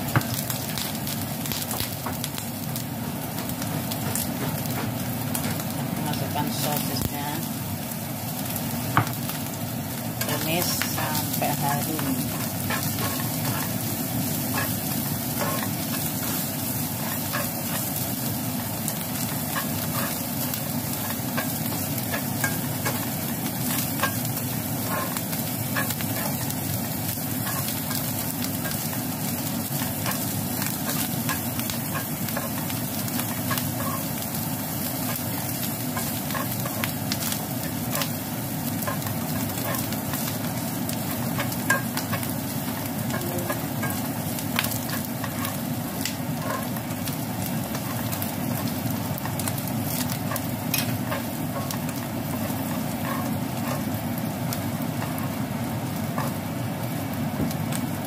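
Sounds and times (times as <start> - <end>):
food sizzling in oil: 0.0 - 58.0
spatula scraping and clicking on pan: 49.9 - 53.9.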